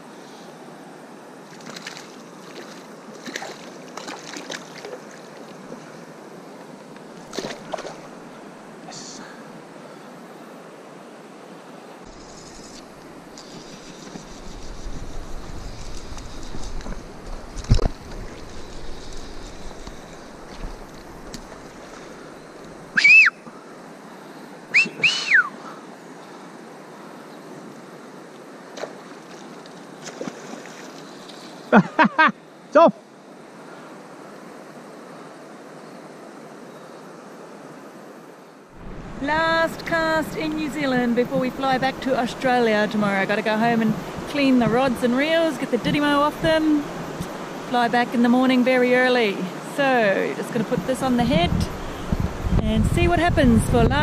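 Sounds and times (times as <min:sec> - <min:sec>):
river water rushing: 0:00.0 - 0:52.4
loud whistles rising and falling: 0:22.9 - 0:23.5, 0:24.7 - 0:25.6.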